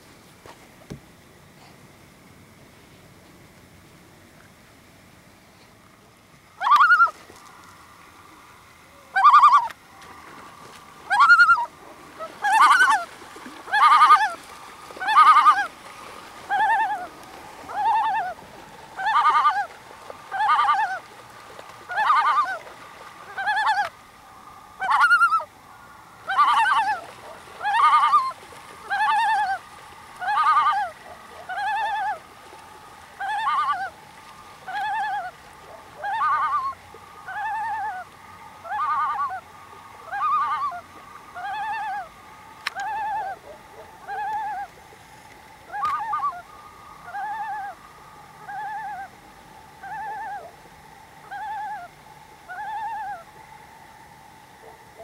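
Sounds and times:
loon calling: 6.6s - 7.6s, 8.8s - 10.2s, 11.0s - 15.8s, 16.4s - 21.2s, 21.8s - 24.0s, 24.7s - 32.5s, 33.1s - 45.0s, 45.6s - 49.2s, 49.8s - 53.5s.

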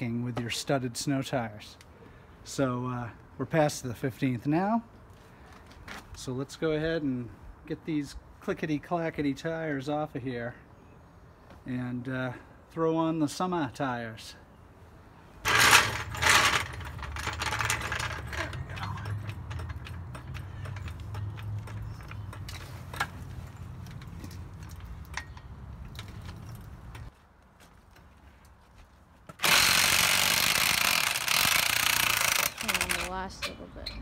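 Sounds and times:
electric impact wrench running: 15.5s - 18.7s, 29.4s - 33.2s
floor jack clicking: 15.5s - 21.8s.

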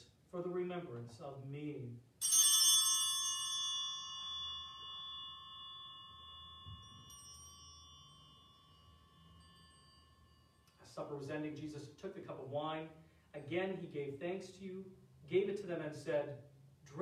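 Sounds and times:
altar bell ringing: 2.2s - 10.9s.

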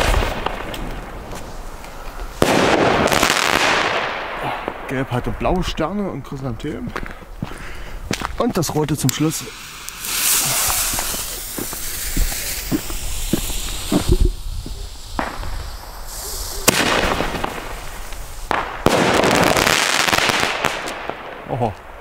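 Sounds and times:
sharp firework bang: 2.4s - 4.9s, 15.2s - 21.4s
fuse hissing: 9.1s - 16.7s, 17.5s - 18.6s.

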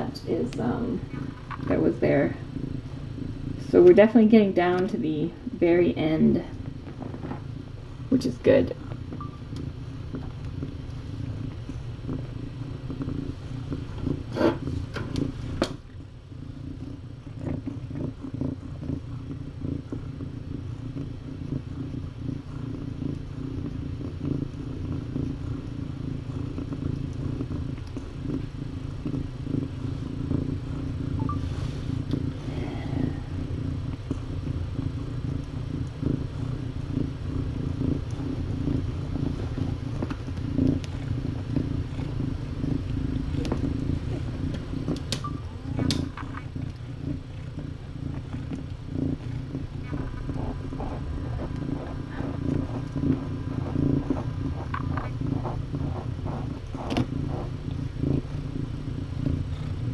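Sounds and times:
cat purring: 0.0s - 59.9s
sharp clicks: 44.5s - 45.3s.

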